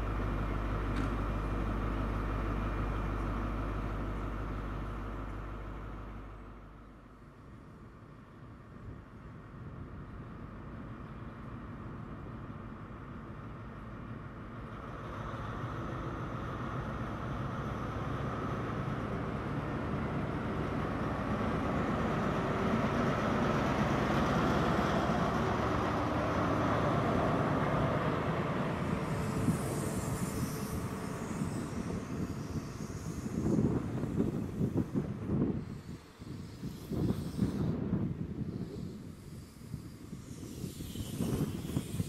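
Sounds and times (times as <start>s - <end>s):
diesel train engine accelerating: 0.0s - 42.0s
train rolling on rails: 0.0s - 42.0s
wind on microphone: 25.3s - 42.0s.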